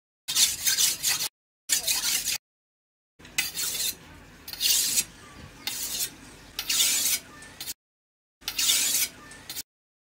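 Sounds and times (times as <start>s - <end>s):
blade scraping on wet whetstone: 0.3s - 2.4s, 3.3s - 7.8s, 8.4s - 9.6s.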